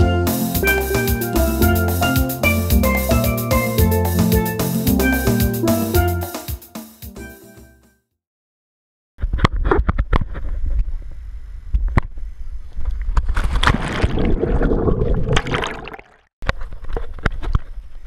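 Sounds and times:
water sloshing and splashing: 13.4 - 16.2.

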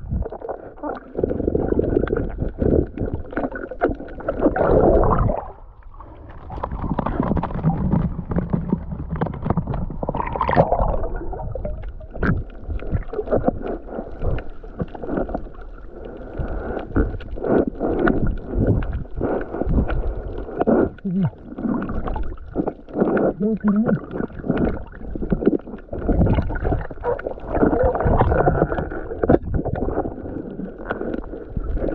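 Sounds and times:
water sloshing and gurgling: 0.0 - 31.9
splashes and knocks: 6.5 - 13.6.

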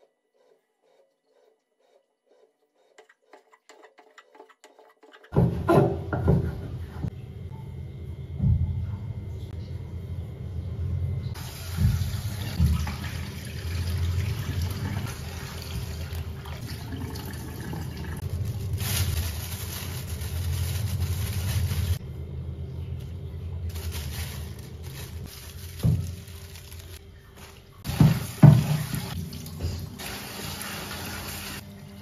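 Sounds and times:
squid rinsed and rubbed by hand: 0.0 - 5.4, 18.2 - 22.0, 23.7 - 31.7.

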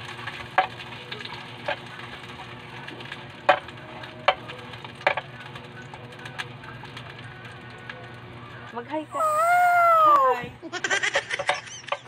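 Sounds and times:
sharp pops of frying oil: 0.0 - 0.8, 3.4 - 5.3
hot dogs sizzling in oil: 0.0 - 10.1.

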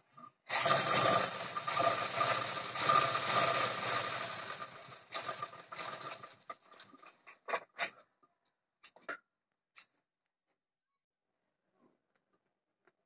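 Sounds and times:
sewing machine stitching: 0.5 - 7.0.

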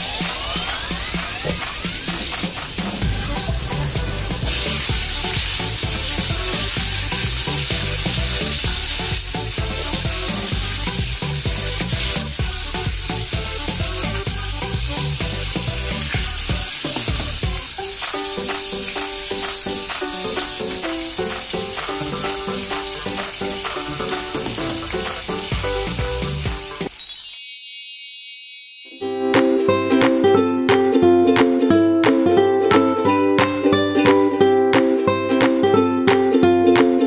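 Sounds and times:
food deep-frying in oil: 0.0 - 26.9
background music with a beat: 0.0 - 27.2, 28.6 - 37.0.

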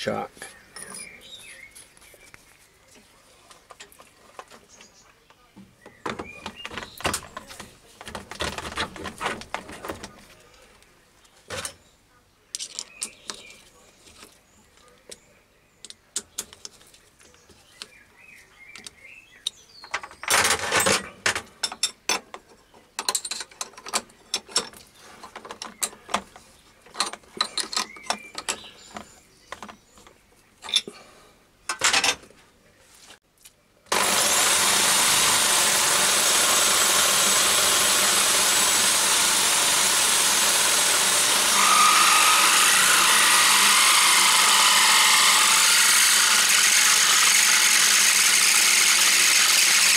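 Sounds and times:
electric power drill running: 33.9 - 49.9.

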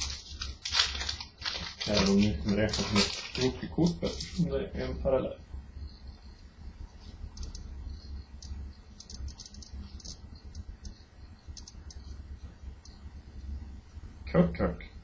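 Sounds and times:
cardboard cards clicking and rustling: 0.0 - 4.4.

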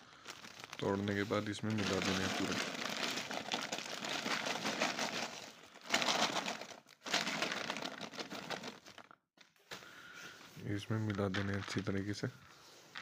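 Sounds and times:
plastic bag crinkling: 0.0 - 9.2
grains pouring into a tub: 0.6 - 9.0.

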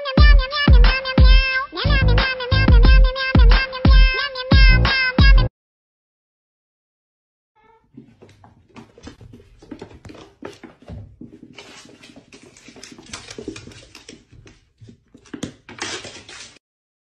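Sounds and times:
cat scrabbling on wooden floor: 8.0 - 16.6.

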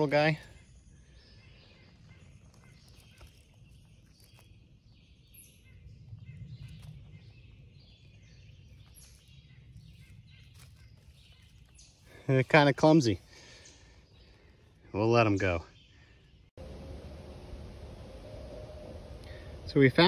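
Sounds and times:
distant bird chirps: 0.0 - 20.0
dry leaves crackling: 1.4 - 5.5, 6.2 - 14.8.

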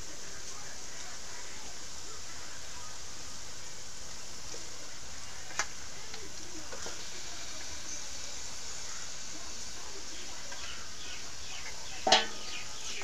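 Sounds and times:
chicken sizzling in oil: 0.0 - 13.0
spatula scraping wok: 10.2 - 13.0
metal spatula knocking on wok: 12.0 - 12.5.

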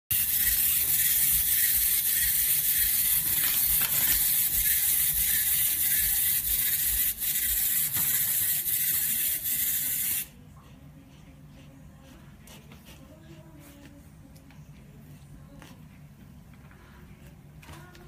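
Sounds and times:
small toy motor whirring: 0.1 - 10.3.

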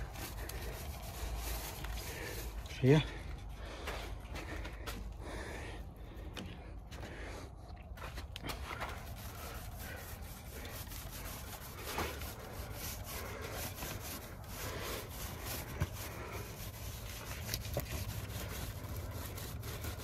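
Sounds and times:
paint roller rubbing on wood: 0.0 - 3.8, 8.8 - 20.0.

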